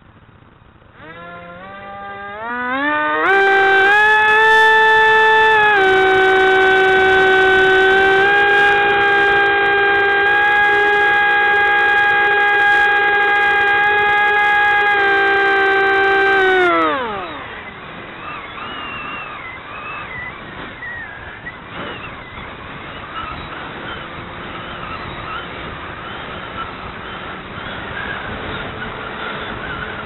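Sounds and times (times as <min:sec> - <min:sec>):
air and wind noise: 0:00.0 - 0:30.0
model aircraft motor winding down: 0:00.0 - 0:30.0.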